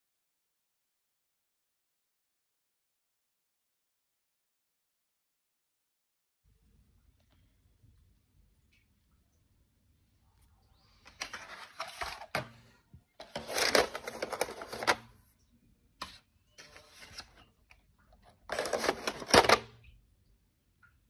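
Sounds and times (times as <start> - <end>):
pencils clicking and clattering: 11.1 - 15.1, 18.2 - 19.8.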